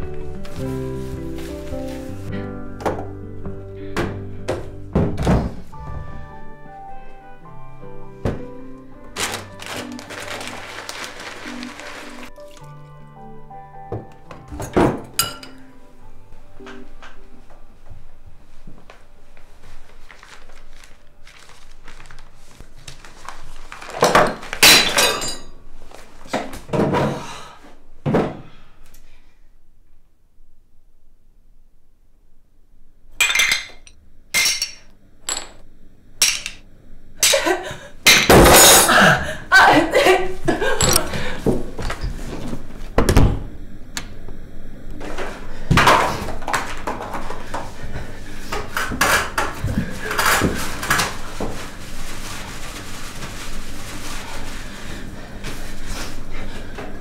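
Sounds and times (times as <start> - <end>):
box and tissue rustling: 0.4 - 2.3, 9.1 - 12.4, 19.4 - 24.6, 49.8 - 56.3
ceramic shards clinking: 15.2 - 15.6, 24.7 - 25.5, 33.2 - 35.6, 36.2 - 36.6, 40.8 - 41.1.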